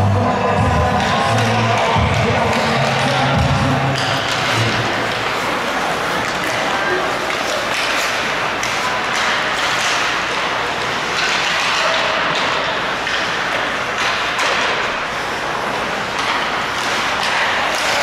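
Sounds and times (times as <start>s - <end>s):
hockey sticks and puck clacking: 0.5s - 18.0s
skates hissing on ice: 4.2s - 11.2s.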